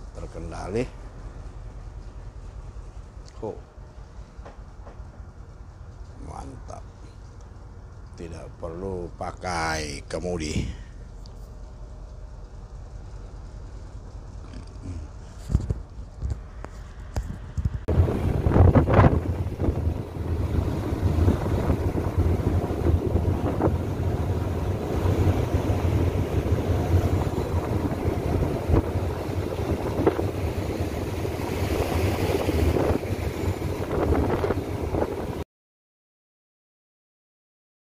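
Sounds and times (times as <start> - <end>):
ship engine low rumble: 0.0 - 35.4
wind buffeting microphone: 10.0 - 35.4
rush of churning wake: 17.9 - 35.4.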